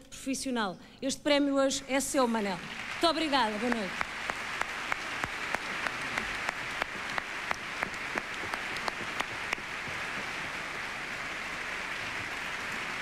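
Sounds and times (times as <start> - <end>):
audience applauding: 2.6 - 13.0
nearby hands clapping: 3.6 - 13.0.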